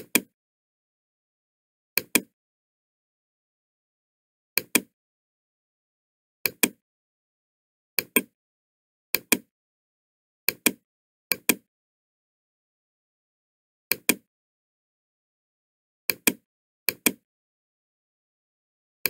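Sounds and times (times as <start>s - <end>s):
computer mouse clicking: 0.0s - 0.3s, 2.0s - 2.3s, 4.6s - 4.9s, 6.5s - 6.8s, 8.0s - 8.3s, 9.2s - 9.5s, 10.5s - 11.7s, 13.9s - 14.3s, 16.1s - 17.2s.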